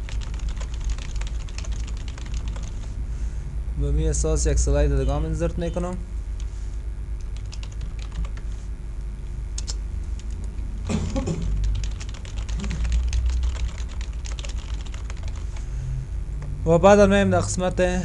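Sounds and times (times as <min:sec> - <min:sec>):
keyboard typing: 0:00.0 - 0:02.7, 0:07.3 - 0:08.4, 0:11.1 - 0:15.6
steady low hum: 0:00.0 - 0:18.0.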